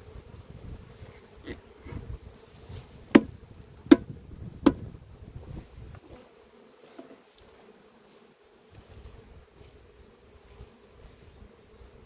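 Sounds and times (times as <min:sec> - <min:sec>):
wooden frame knocking on box: 0:03.1 - 0:03.3, 0:03.9 - 0:04.8.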